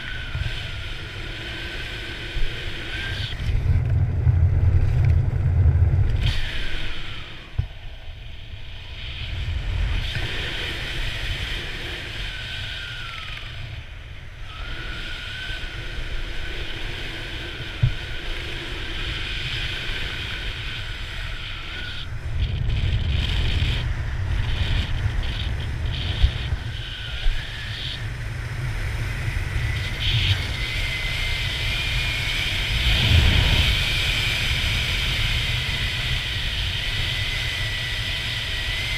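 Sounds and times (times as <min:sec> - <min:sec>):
wind buffeting microphone: 0:00.0 - 0:38.9
faint whistling tone: 0:14.4 - 0:16.2.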